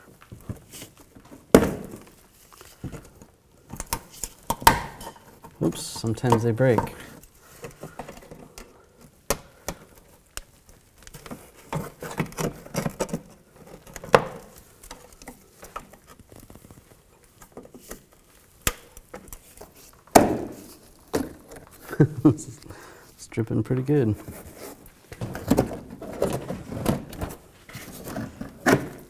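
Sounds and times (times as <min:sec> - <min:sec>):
plastic fasteners clicking and snapping: 0:02.0 - 0:21.9
plastic liner scraping and rustling: 0:09.9 - 0:22.3, 0:23.8 - 0:29.0.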